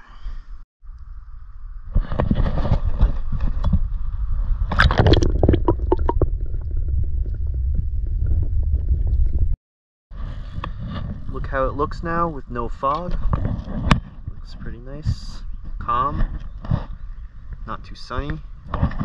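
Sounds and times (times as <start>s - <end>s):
underwater rumble: 0.9s - 9.6s
water gurgling and splashing: 4.7s - 8.8s.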